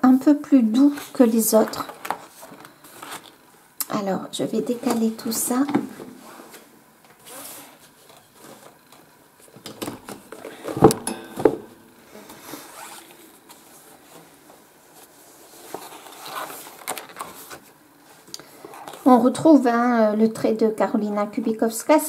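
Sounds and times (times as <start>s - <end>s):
page turning: 15.5s - 17.7s
paper rustling and clicks: 15.6s - 17.7s.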